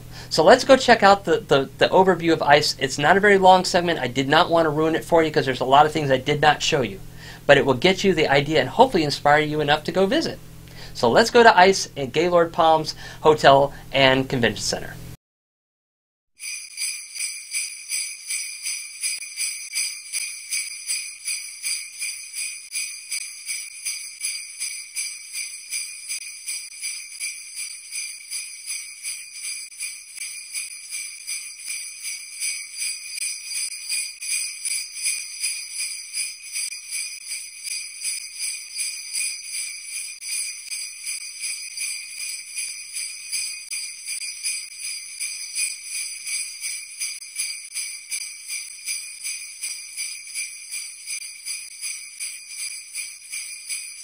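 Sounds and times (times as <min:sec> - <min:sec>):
sleigh bells shaken: 0:16.4 - 0:54.0.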